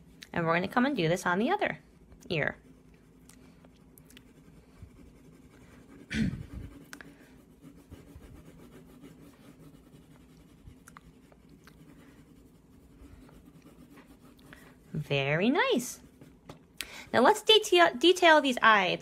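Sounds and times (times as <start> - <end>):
pencil scribbling on paper: 4.2 - 16.4.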